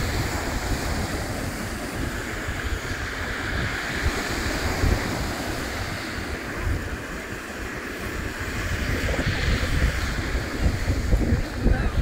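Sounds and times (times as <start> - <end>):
waves breaking on shingle beach: 0.0 - 12.0
wind buffeting microphone: 0.0 - 12.0.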